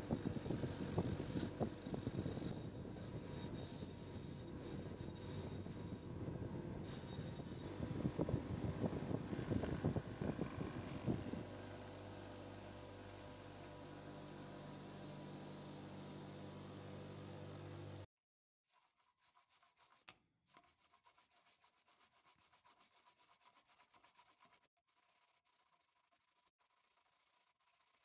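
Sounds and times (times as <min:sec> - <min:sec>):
electric motor humming: 0:00.0 - 0:18.0.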